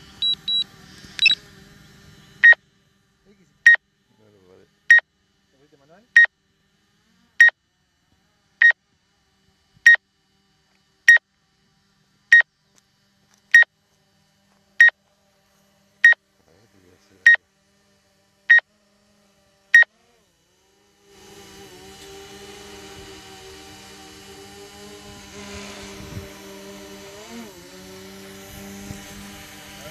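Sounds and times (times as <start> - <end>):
steady hum and hiss: 0.0 - 29.9
short high-pitched beeps: 0.2 - 1.4, 2.4 - 2.6.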